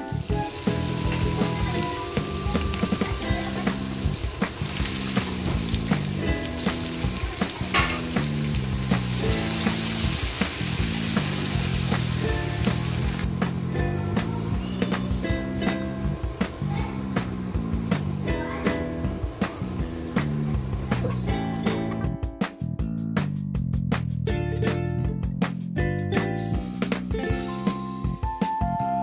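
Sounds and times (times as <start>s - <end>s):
garlic sizzling in hot oil: 0.0s - 21.9s
background music: 0.0s - 29.0s.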